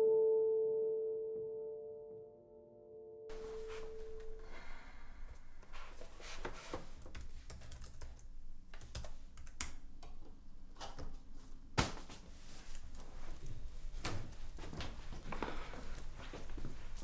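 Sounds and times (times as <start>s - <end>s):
held ringing tone: 0.0s - 5.1s
laptop keyboard typing: 6.8s - 10.2s.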